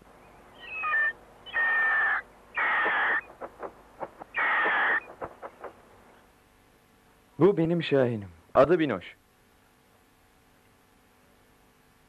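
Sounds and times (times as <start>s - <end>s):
cartoon hawk squawking: 0.6s - 3.3s, 4.4s - 5.1s.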